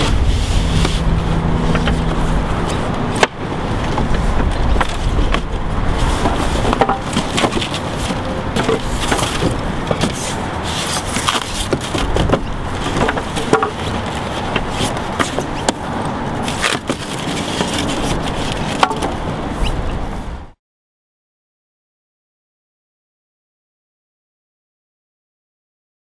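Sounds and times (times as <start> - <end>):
low steady hum: 0.0 - 20.5.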